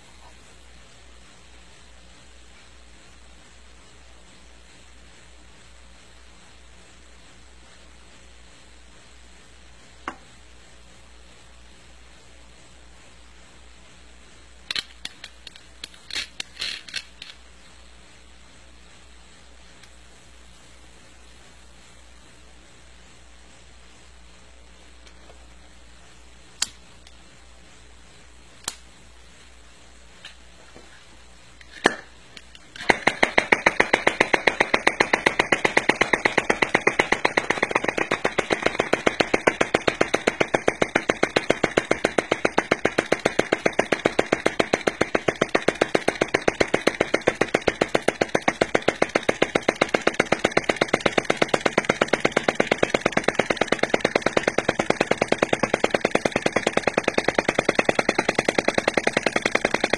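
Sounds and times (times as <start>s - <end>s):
sharp clicks: 14.7s - 17.4s
small engine mechanical clatter: 31.6s - 59.9s.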